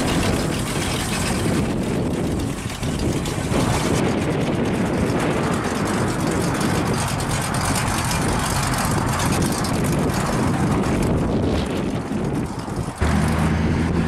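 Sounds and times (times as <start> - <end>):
car engines driving slowly past: 4.5 - 14.0.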